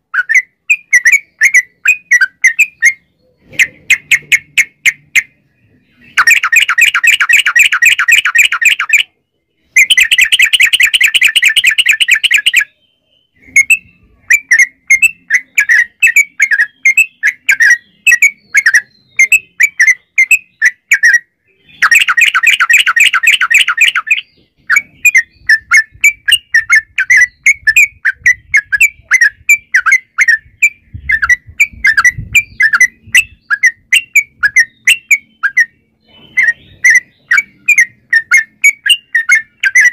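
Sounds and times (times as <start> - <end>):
bird chattering notes: 0.0 - 12.8, 13.4 - 39.9
bird rapid trills: 6.1 - 9.1, 9.8 - 12.7, 21.8 - 35.7.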